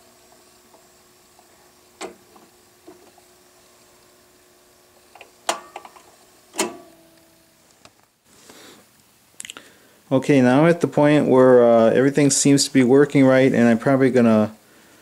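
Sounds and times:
turntable motor hum: 0:00.0 - 0:08.1.

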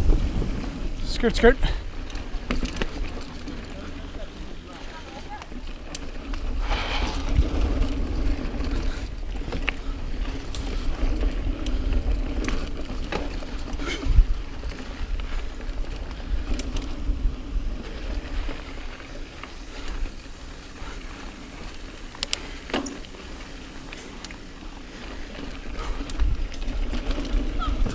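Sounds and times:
wind rumble on microphone: 0:00.0 - 0:01.1, 0:06.4 - 0:20.8, 0:25.2 - 0:27.9
bicycle tyre noise on dirt: 0:00.0 - 0:27.9
bike rattling and clacking: 0:00.0 - 0:27.9.

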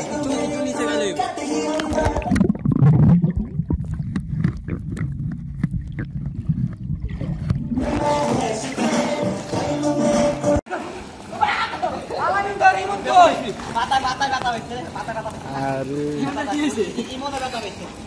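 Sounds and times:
music with singing: 0:00.0 - 0:02.4, 0:07.7 - 0:10.7
bubbles clicking and popping: 0:01.8 - 0:08.1
underwater rumble of moving water: 0:02.2 - 0:07.9.

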